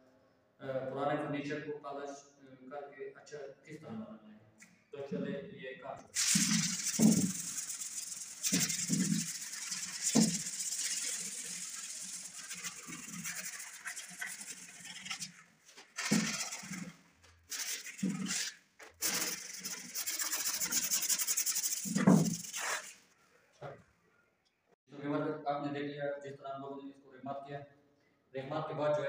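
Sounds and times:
sandpaper scratching wood: 6.2s - 23.1s.

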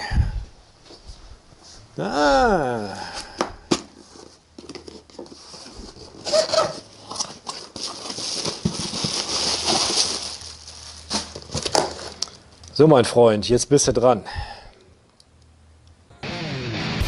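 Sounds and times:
cardboard and packing rustling: 3.7s - 12.6s.

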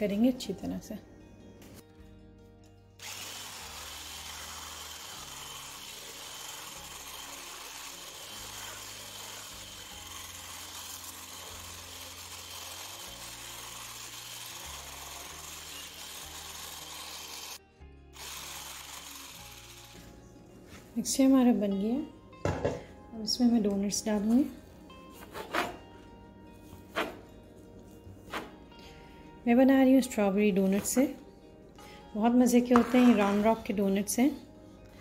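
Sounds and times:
electric hand blender whisking: 3.0s - 17.6s, 18.2s - 20.1s.

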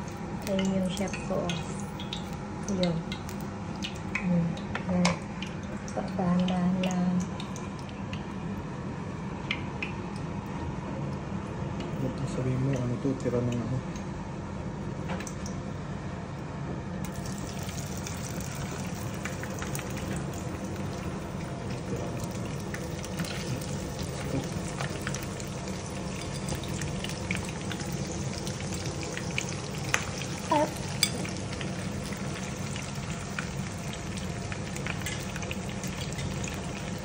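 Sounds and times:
pork sizzling in a frying pan: 0.0s - 8.2s, 17.0s - 37.0s.

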